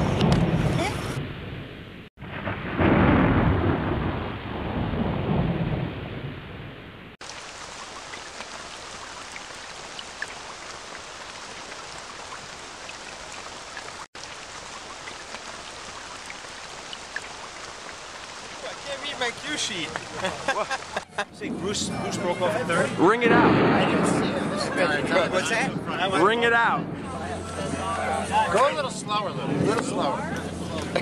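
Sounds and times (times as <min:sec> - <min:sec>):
rain on wet road: 0:07.2 - 0:21.2
low rumble: 0:21.2 - 0:31.0.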